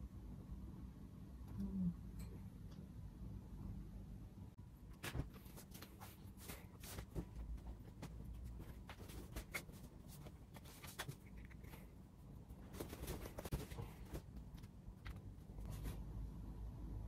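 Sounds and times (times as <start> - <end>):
fabric rustling: 12.5 - 14.8.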